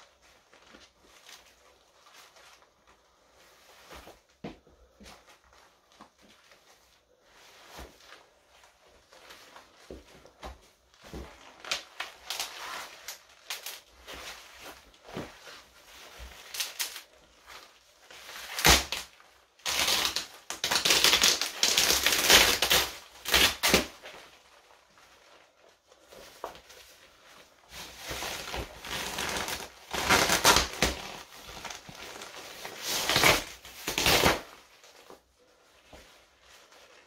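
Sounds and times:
fabric rustling: 0.0 - 37.0
fabric tearing and crackling: 16.2 - 25.5, 27.8 - 35.1.

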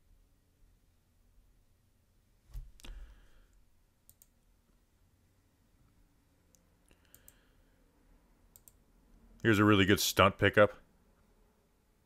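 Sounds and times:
computer mouse clicks: 4.0 - 4.4, 6.5 - 7.5, 8.5 - 8.8.

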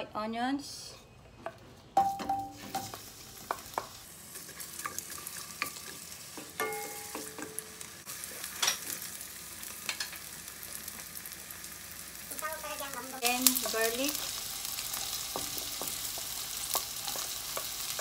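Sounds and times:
onions sizzling in oil: 2.0 - 18.0
spatula scraping wok: 2.6 - 10.2
onions landing in wok: 6.4 - 7.8
metallic pan rings: 6.6 - 7.7.

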